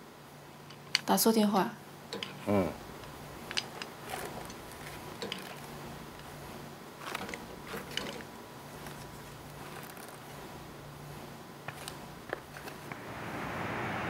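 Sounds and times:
low steady hum: 0.0 - 14.0
faint clicks and rustles: 0.5 - 1.2, 2.0 - 13.1.

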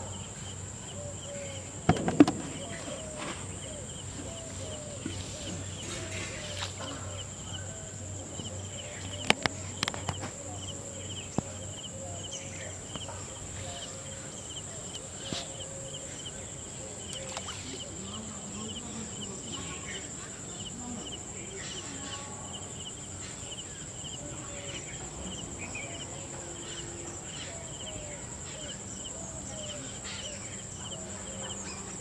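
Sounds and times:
loud knock: 1.9 - 3.2.

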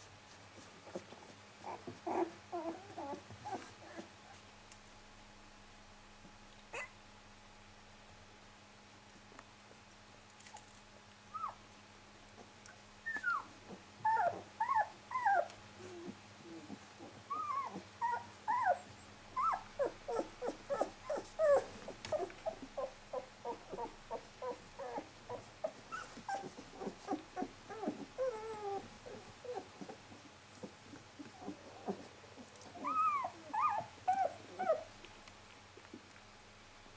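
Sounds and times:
puppy whimpering: 0.9 - 4.1, 6.7 - 7.0, 11.3 - 11.6, 13.0 - 30.0, 30.6 - 34.9.

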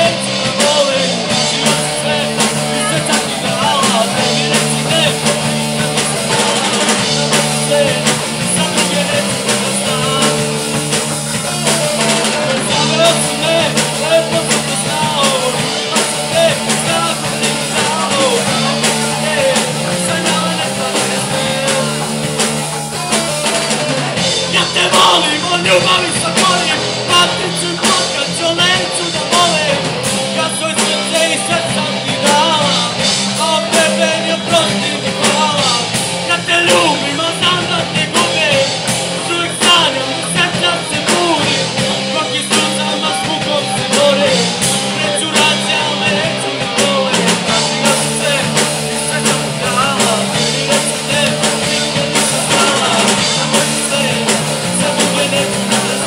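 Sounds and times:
punk rock band playing: 0.0 - 56.0
sung vocals: 0.0 - 56.0.

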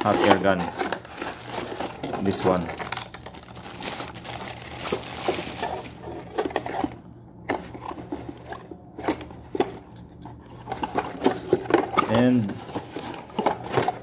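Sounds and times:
plastic bag crinkling: 0.0 - 6.2.

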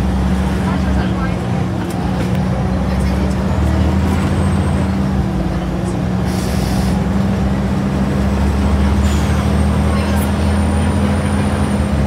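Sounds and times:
bus diesel engine droning: 0.0 - 12.0.

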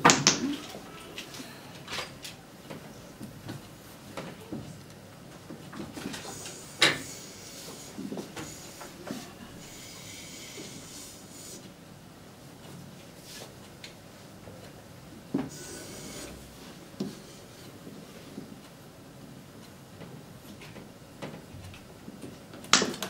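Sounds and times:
chalk scraping on chalkboard: 6.3 - 11.7, 15.5 - 17.7.

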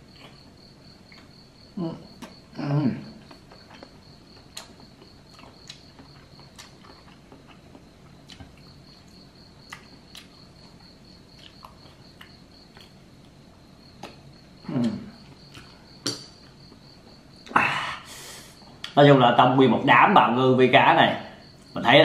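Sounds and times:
mouth clicks and smacks chewing: 3.2 - 10.4, 11.3 - 13.0, 14.0 - 14.2.

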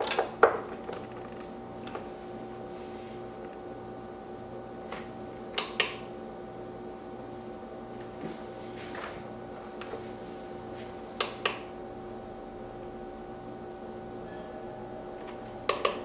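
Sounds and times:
fridge humming: 8.0 - 16.0.

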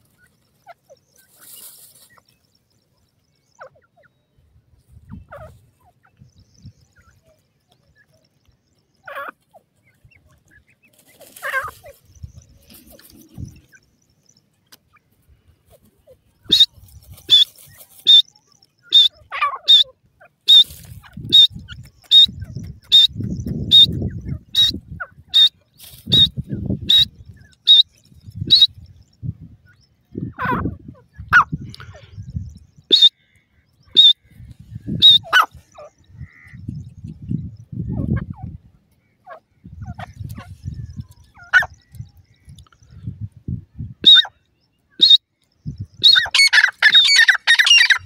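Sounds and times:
low rustling noise: 0.0 - 2.9, 9.4 - 18.2
lower sliding bird calls: 16.4 - 19.9, 20.5 - 28.7, 32.8 - 33.2, 33.8 - 36.6
birds calling short high notes: 16.4 - 29.5, 30.1 - 37.2, 43.8 - 48.0.

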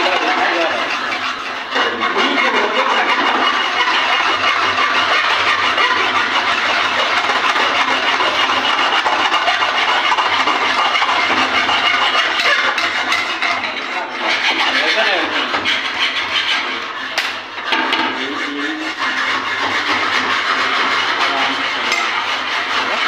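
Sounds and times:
hand file rasping on metal: 0.0 - 23.0.

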